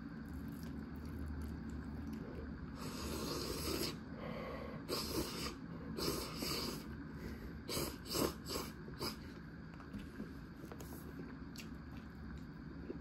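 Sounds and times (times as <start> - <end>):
person slurping noodles: 2.8 - 4.0, 4.8 - 6.9, 7.6 - 9.2.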